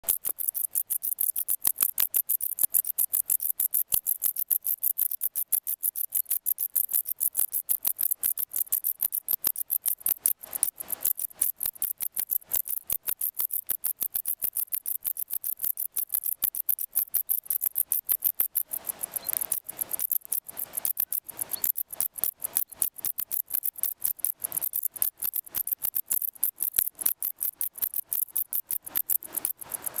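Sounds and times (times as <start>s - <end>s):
bush-crickets singing: 0.0s - 30.0s.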